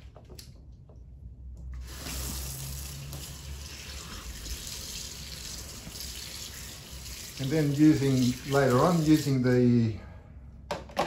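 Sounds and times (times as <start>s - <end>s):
splashing in soapy water: 1.8s - 9.4s
tap running water: 1.8s - 9.5s.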